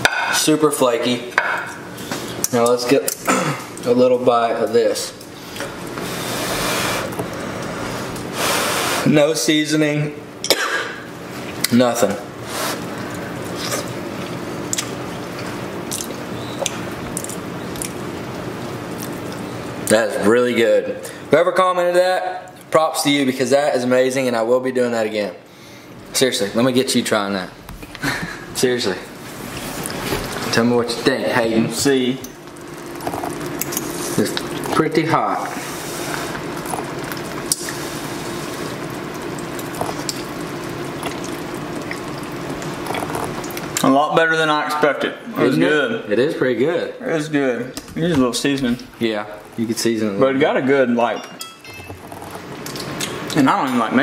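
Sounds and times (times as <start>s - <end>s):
steady background hum: 0.0s - 54.0s
person chewing: 12.6s - 19.5s, 32.2s - 34.8s, 36.1s - 43.8s, 52.0s - 53.4s
mouth clicks and smacks: 15.9s - 18.0s
food sizzling in pans: 31.8s - 43.8s.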